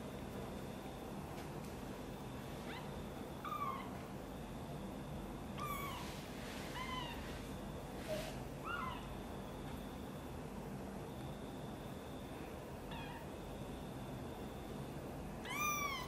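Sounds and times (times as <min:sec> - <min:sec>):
kitten mewing: 0:15.4 - 0:16.0.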